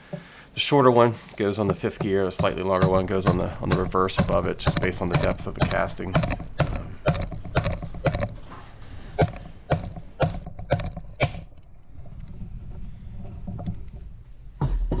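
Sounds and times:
hammer knocking on metal tool: 1.6s - 8.4s, 9.2s - 11.4s.

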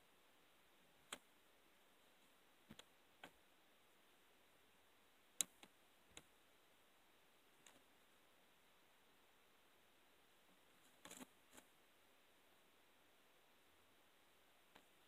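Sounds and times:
faint sharp clicks: 5.4s - 6.3s.

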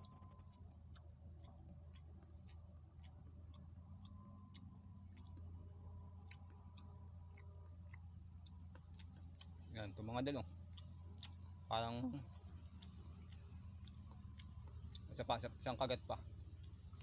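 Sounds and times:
insects trilling: 0.0s - 17.0s
low steady rumble: 0.0s - 17.0s.

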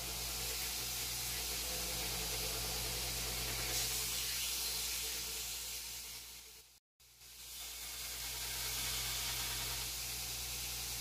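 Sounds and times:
low motor hum: 0.0s - 4.2s
belt grinder grinding steel: 7.6s - 10.1s.

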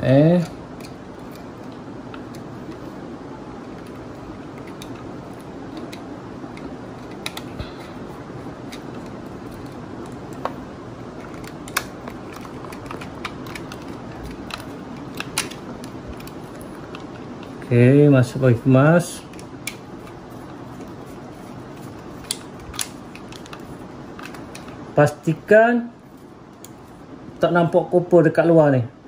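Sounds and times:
steady background hiss: 0.0s - 29.0s
wires and screwdriver clicking on plastic: 0.3s - 2.9s, 3.6s - 7.8s, 8.6s - 17.7s, 19.2s - 24.9s.

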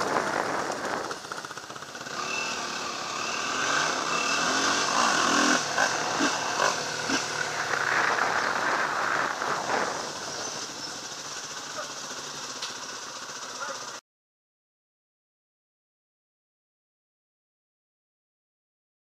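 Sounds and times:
wind noise: 0.0s - 1.4s, 6.0s - 10.7s
motorcycle running: 0.0s - 14.0s.

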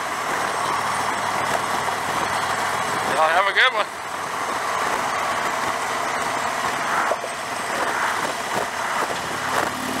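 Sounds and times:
motorcycle engine running: 0.0s - 10.0s
wind rushing on microphone: 1.1s - 10.0s.

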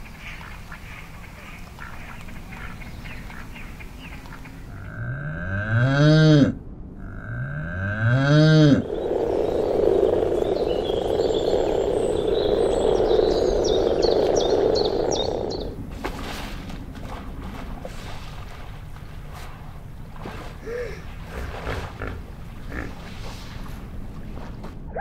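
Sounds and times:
frogs croaking: 0.0s - 6.1s, 7.0s - 15.8s, 21.9s - 23.2s
cow mooing: 4.8s - 8.8s.

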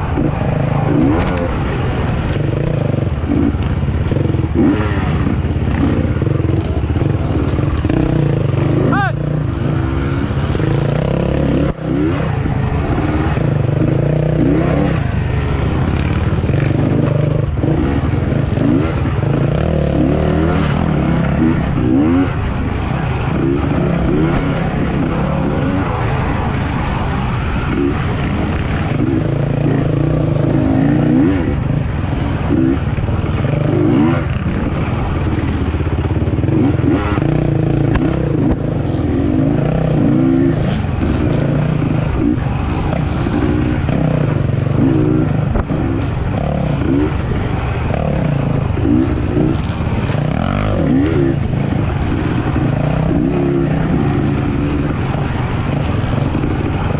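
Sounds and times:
racing engine revving: 0.0s - 56.9s.

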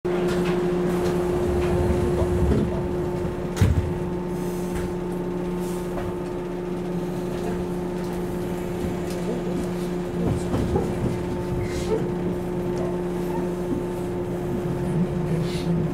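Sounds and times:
train electrical hum: 0.1s - 15.9s
sliding doors shutting: 0.4s - 4.0s
low rumble: 1.0s - 4.2s.

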